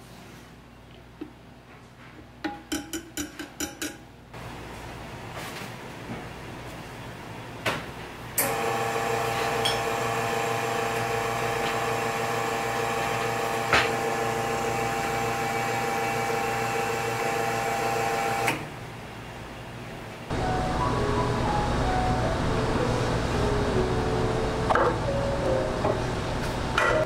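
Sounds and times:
espresso machine pump humming: 0:08.4 - 0:18.5.

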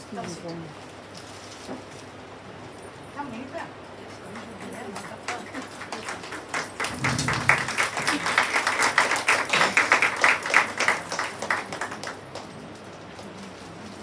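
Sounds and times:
audience applauding: 0:04.4 - 0:12.8.

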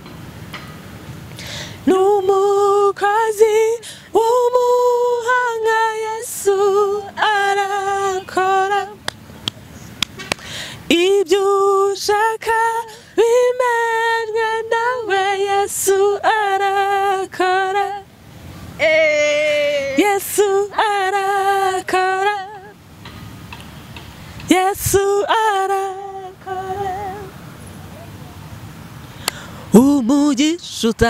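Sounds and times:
woman singing unaccompanied: 0:01.8 - 0:09.1, 0:10.8 - 0:18.1, 0:18.8 - 0:22.8, 0:24.4 - 0:27.4, 0:29.7 - 0:31.0.

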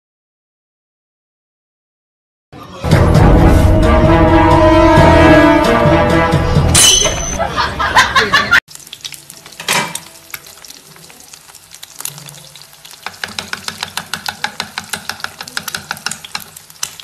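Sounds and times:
loud music: 0:02.8 - 0:07.4
eggs and sausage frying in oil: 0:08.7 - 0:17.0.

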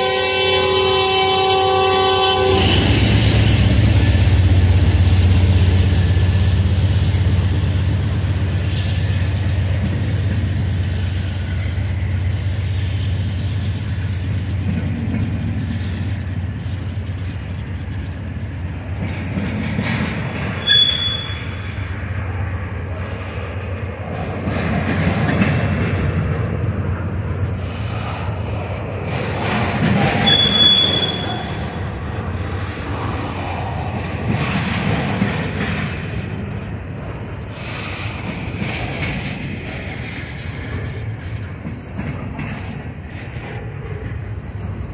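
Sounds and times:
train wheels rumbling: 0:00.0 - 0:44.9
high-pitched wheel squeals: 0:20.6 - 0:22.1, 0:30.2 - 0:31.9.

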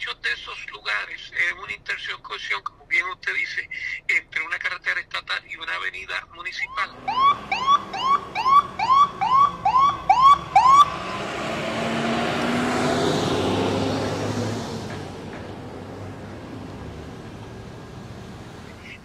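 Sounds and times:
siren whooping: 0:06.6 - 0:11.8
vehicle passing: 0:06.9 - 0:19.0.

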